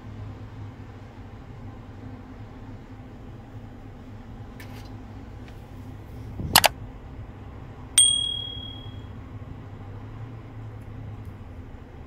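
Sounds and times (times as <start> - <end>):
low background hum: 0.0 - 12.0
bright bell ding: 8.0 - 9.1.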